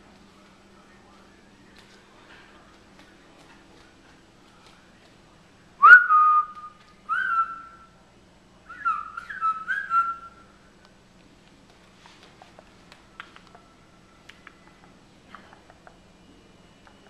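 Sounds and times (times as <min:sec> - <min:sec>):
parakeet whistling: 0:05.8 - 0:07.8, 0:08.7 - 0:10.4.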